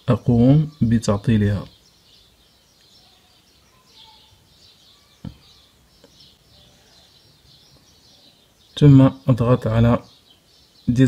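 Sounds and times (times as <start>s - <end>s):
faint high bird chirps: 0.0s - 11.0s
soft taps: 5.2s - 5.4s.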